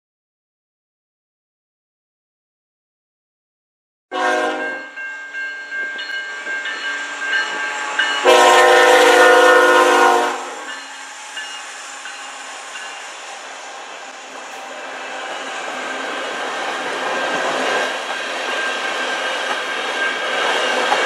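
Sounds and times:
locomotive horn: 4.1s - 4.9s, 7.9s - 10.7s
train running through crossing: 4.1s - 21.0s
railway crossing bell ringing: 4.2s - 21.0s.

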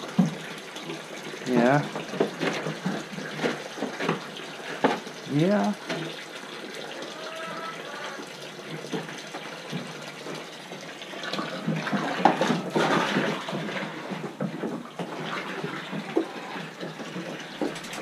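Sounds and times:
water splashing into a container: 8.2s - 18.0s.

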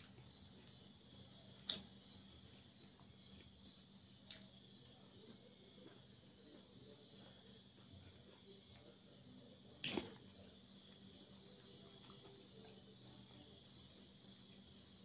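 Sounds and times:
crickets chirring: 0.0s - 15.0s.

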